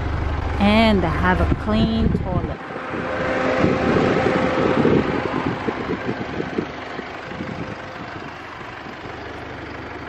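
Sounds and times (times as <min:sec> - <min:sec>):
car engine and tyres rumbling: 0:00.0 - 0:10.0.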